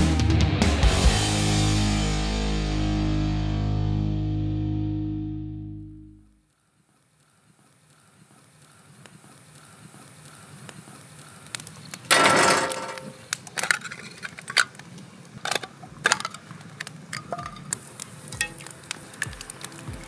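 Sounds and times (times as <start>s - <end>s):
wood fire crackling and popping: 6.4s - 20.0s.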